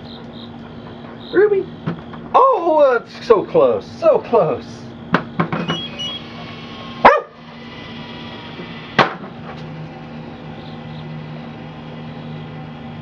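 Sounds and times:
dog barking: 7.0 - 7.4.

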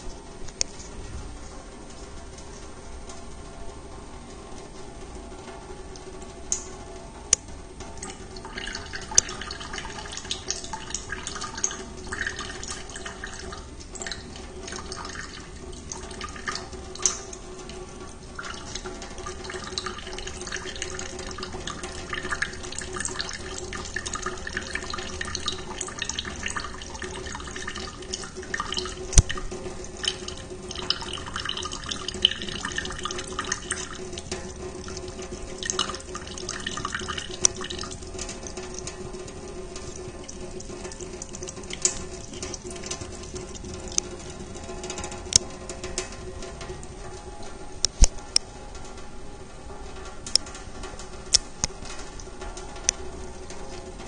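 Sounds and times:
tap water running into sink: 7.8 - 46.8
cat lapping water: 8.0 - 45.6.

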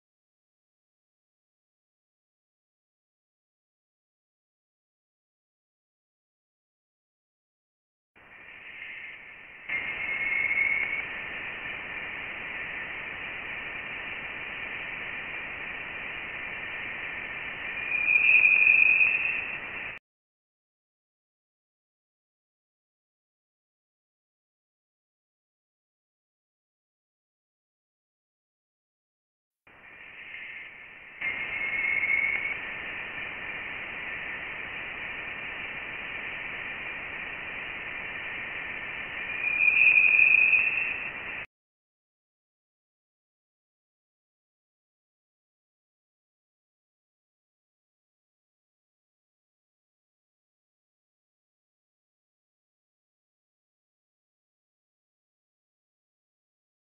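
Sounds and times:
steady hiss: 8.2 - 20.0, 29.7 - 41.5
whistling tones: 8.4 - 12.8, 17.2 - 20.0, 29.8 - 34.4, 38.2 - 41.5.

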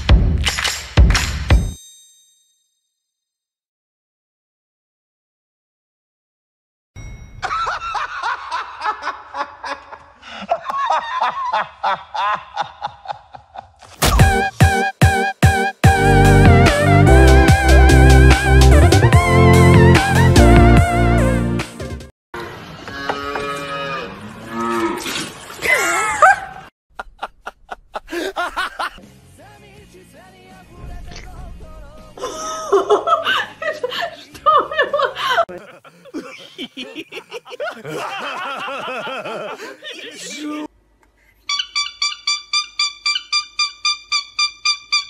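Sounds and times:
calf mooing: 22.9 - 25.0
person snickering: 25.7 - 29.0, 32.2 - 34.3, 35.1 - 40.7
short laugh: 25.7 - 29.0.

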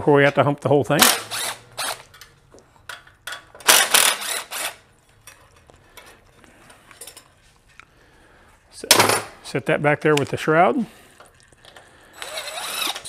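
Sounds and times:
cordless power driver running: 1.0 - 2.2, 3.6 - 4.8, 12.2 - 13.0.

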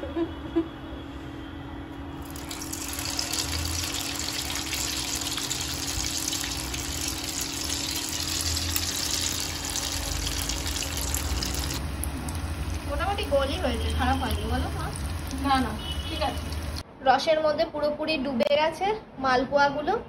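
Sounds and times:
batter sizzling in hot oil: 2.2 - 16.8.

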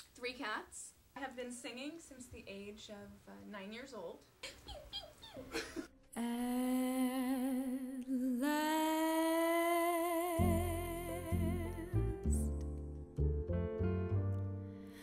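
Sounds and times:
woman singing with vibrato: 6.2 - 12.5
low instrumental accompaniment: 10.4 - 15.0.

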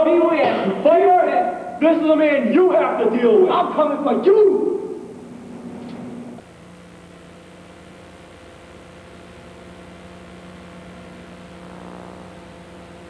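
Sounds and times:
electrical mains hum with hiss: 0.0 - 13.0.

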